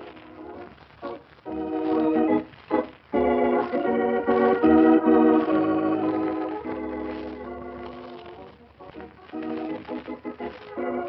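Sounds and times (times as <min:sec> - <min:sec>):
organ playing chords: 0:00.0 - 0:11.0.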